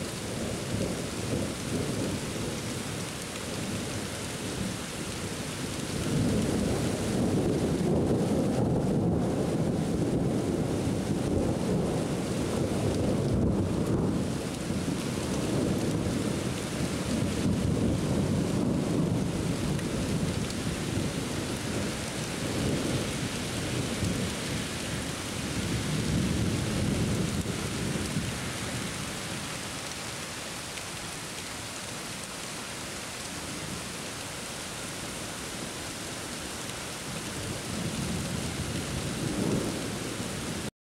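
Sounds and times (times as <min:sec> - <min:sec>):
steady rain: 0:00.0 - 0:40.7
thunder rumbling: 0:05.8 - 0:24.5, 0:25.4 - 0:28.4, 0:37.3 - 0:40.6.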